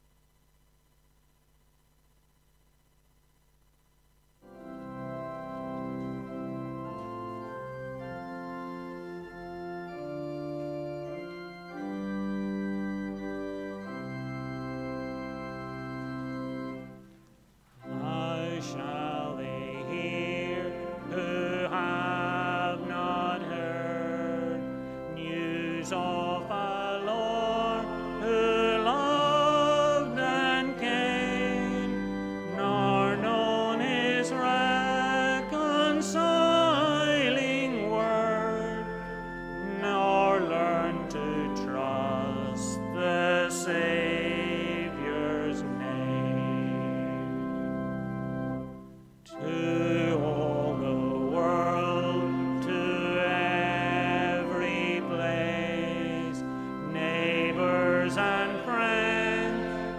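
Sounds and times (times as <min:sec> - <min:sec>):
church organ chords: 0:04.4 - 0:59.9
person singing with vibrato: 0:17.8 - 0:47.6, 0:49.3 - 0:59.9.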